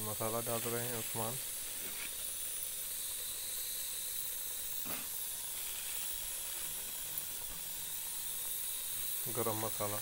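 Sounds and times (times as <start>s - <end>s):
chicken sizzling in oil: 0.0s - 10.0s.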